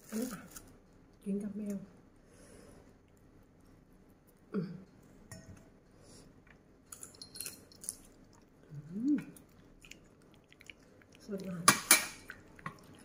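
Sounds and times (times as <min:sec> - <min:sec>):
person chewing seafood: 0:07.8 - 0:11.6, 0:12.2 - 0:13.0.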